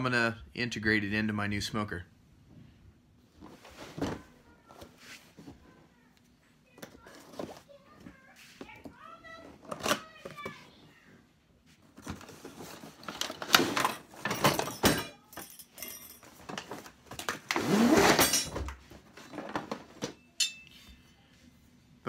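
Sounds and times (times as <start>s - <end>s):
metal forks clinking: 14.5s - 16.3s, 20.4s - 20.9s.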